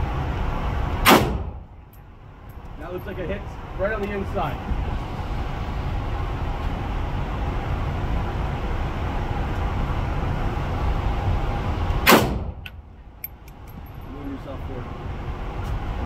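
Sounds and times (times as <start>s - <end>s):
low background rumble: 0.0s - 16.0s
rifle shot: 1.0s - 1.6s, 12.0s - 12.6s.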